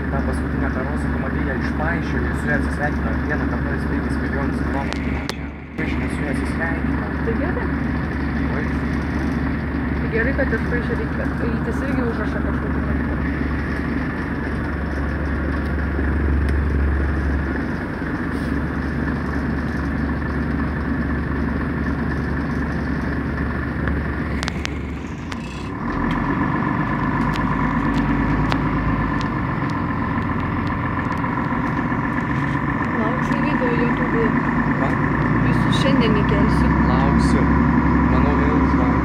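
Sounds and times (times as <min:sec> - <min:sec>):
bus engine humming: 0:00.0 - 0:39.0
steady whine: 0:00.0 - 0:39.0.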